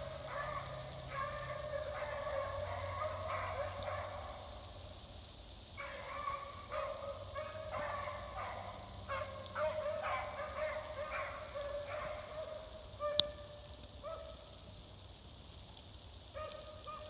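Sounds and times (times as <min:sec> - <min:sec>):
dogs baying: 0:00.0 - 0:04.5, 0:05.8 - 0:13.4.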